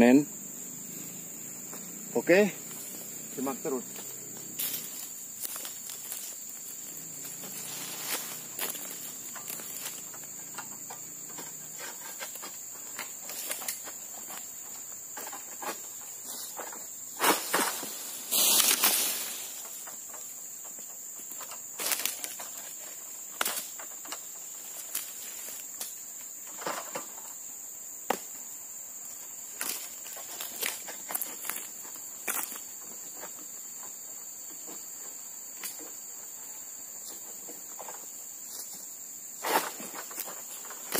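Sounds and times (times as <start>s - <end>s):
insect drone: 0.0s - 40.9s
sickle knocking and scraping fronds: 4.6s - 27.3s, 29.4s - 33.4s, 39.4s - 40.9s
palm frond crashing down: 17.2s - 19.7s.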